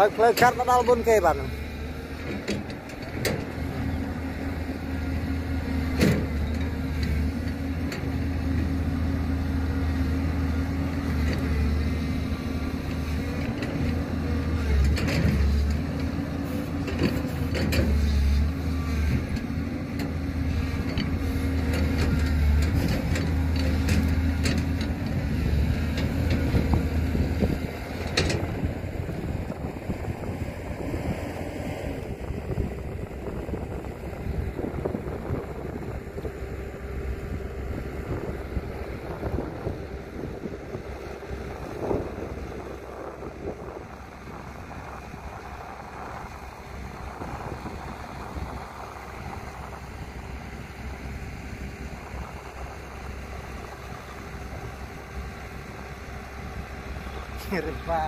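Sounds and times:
heavy diesel engine running: 0:00.0 - 0:58.0.

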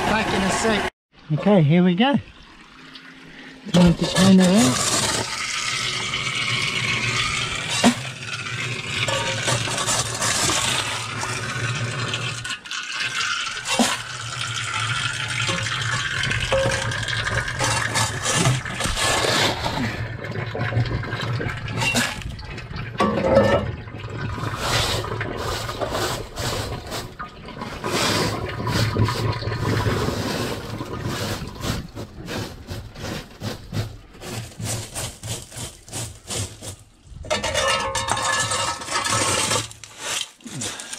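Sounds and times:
water splashing and draining: 0:02.2 - 0:33.0
gravel scraped across metal sieve: 0:03.8 - 0:12.5, 0:17.5 - 0:20.0, 0:24.4 - 0:36.9, 0:38.0 - 0:40.9.

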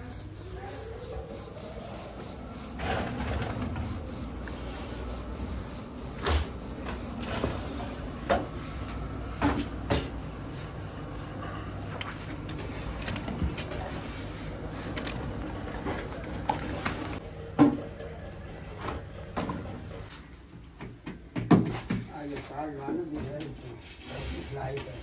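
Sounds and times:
rolling pin rubbing on dough: 0:00.0 - 0:14.4.

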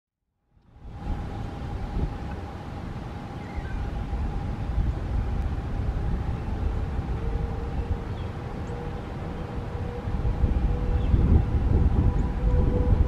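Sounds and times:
distant warning sirens: 0:00.6 - 0:13.0
wind buffeting microphone: 0:00.7 - 0:13.0.

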